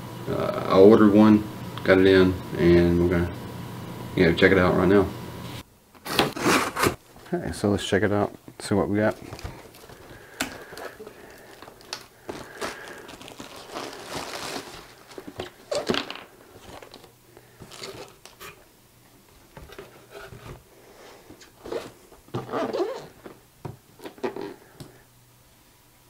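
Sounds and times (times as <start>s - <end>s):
cardboard packaging crinkling: 9.0s - 18.6s.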